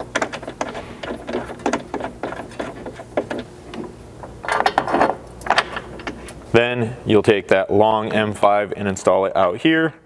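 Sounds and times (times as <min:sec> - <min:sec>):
metal rattle: 0:00.0 - 0:06.2
metal bolts clicking and scraping: 0:00.0 - 0:06.4.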